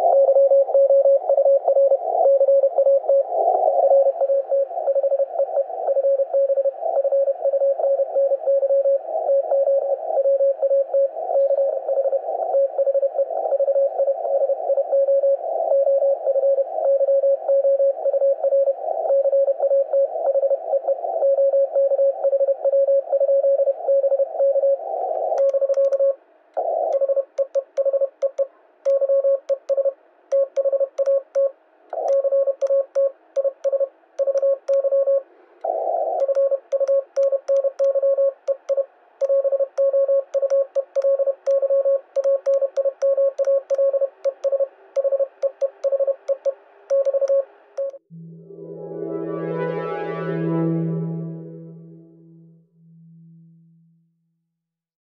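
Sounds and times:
morse code tone: 25.2 - 48.3.

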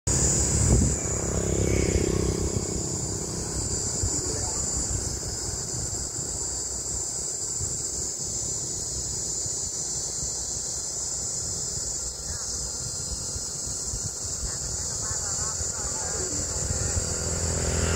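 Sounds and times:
cicada buzzing: 0.0 - 17.9.

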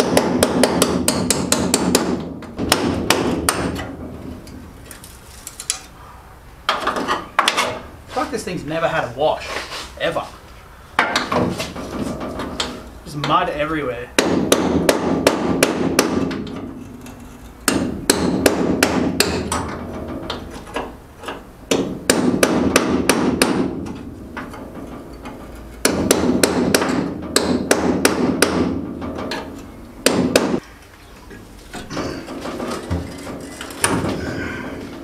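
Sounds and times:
hammer on chisel through metal: 0.0 - 3.7, 14.2 - 16.4, 17.7 - 19.6, 25.8 - 28.8.

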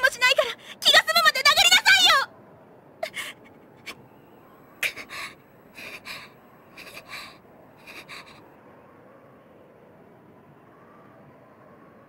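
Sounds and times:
person breathing raggedly: 4.8 - 8.5.

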